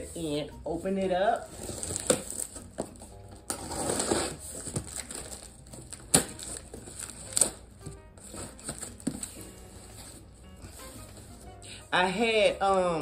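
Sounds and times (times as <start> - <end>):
cardboard cracking: 1.5 - 9.4
box cutter slitting tape: 3.5 - 5.4.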